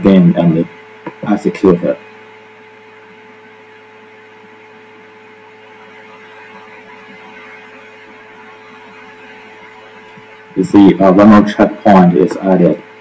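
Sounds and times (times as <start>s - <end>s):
electrical hum with hiss: 0.0s - 13.0s.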